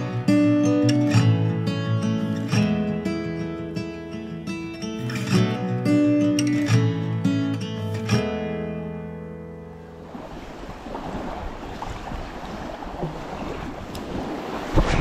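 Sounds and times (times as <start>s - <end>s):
acoustic guitar chord: 0.0s - 10.0s
small waves lapping on shore: 9.6s - 15.0s
wind on microphone: 10.0s - 15.0s.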